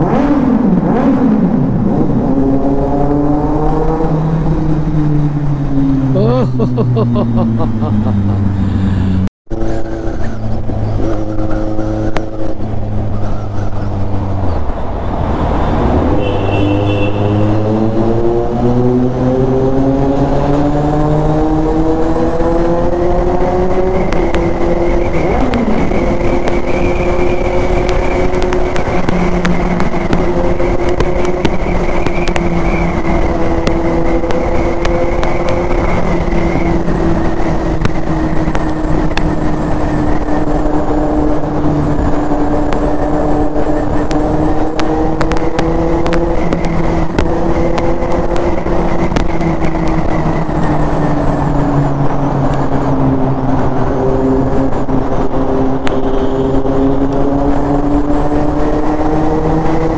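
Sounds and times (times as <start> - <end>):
motorcycle engine accelerating in tunnel: 0.0 - 59.9
wind noise: 0.0 - 59.9.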